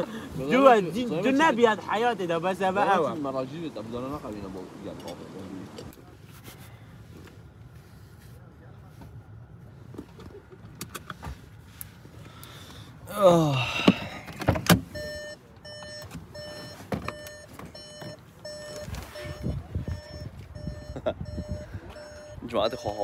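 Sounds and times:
car door opening clicks: 13.8s - 20.6s
car warning chime beeping: 14.9s - 23.0s.

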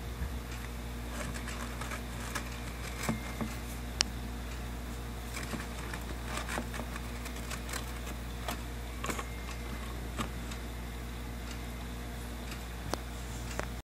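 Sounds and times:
low hum: 0.0s - 13.8s
crab claws clicking: 5.3s - 10.3s.

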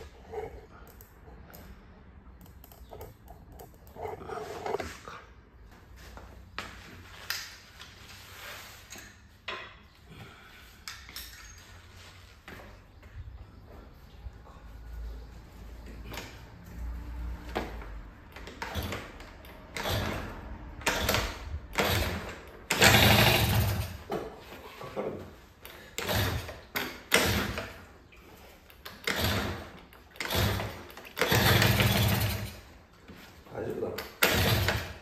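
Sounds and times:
moped engine cranking: 18.4s - 24.1s, 25.9s - 27.6s, 28.9s - 32.7s, 34.1s - 35.0s.

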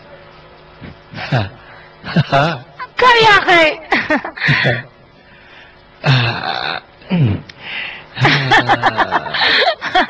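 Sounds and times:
man laughing: 1.2s - 2.8s, 3.9s - 4.9s, 8.2s - 10.0s.

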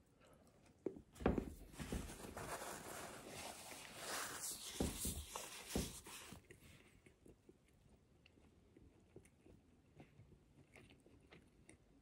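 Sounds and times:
chewing mouth noises: 6.4s - 12.0s.

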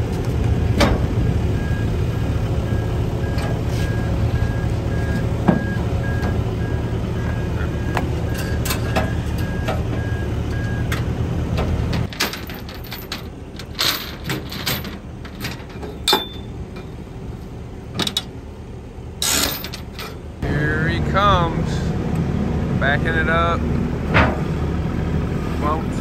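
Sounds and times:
engine running: 0.0s - 26.0s
backup alarm beeping: 2.6s - 10.9s
chains and metal clanking: 8.3s - 9.6s, 11.9s - 17.0s, 19.2s - 20.2s.

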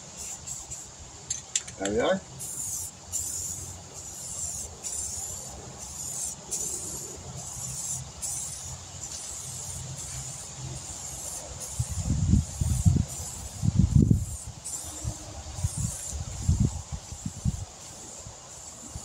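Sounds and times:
spray paint can hissing: 0.0s - 1.8s, 2.4s - 19.0s.

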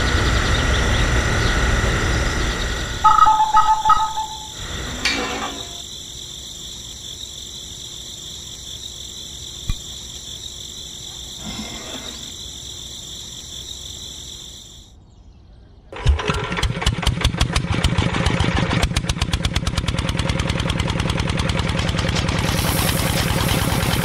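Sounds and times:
steady high-pitched tone: 0.0s - 5.9s.

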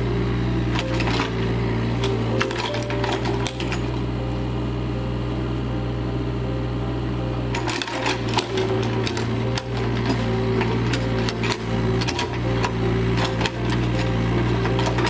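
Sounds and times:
diesel engine running: 0.0s - 15.0s
excavator bucket clanks and knocks: 0.8s - 4.0s, 7.5s - 15.0s.

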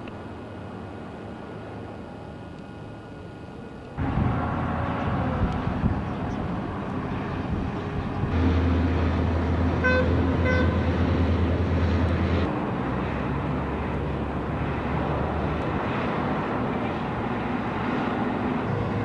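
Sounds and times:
vehicle engine humming: 0.0s - 19.0s
vehicle horn toots: 9.8s - 10.9s.

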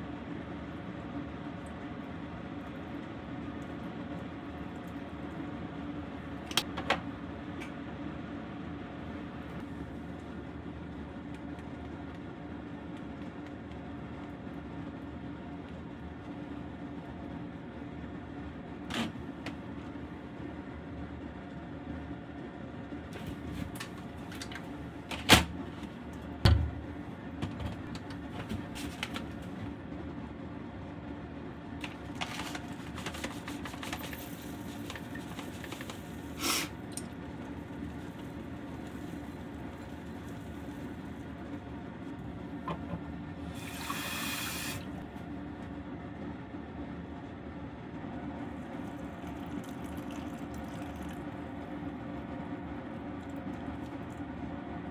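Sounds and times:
steady low hum: 0.0s - 54.9s
tap water running: 31.8s - 41.6s, 42.6s - 45.0s, 48.6s - 51.6s.

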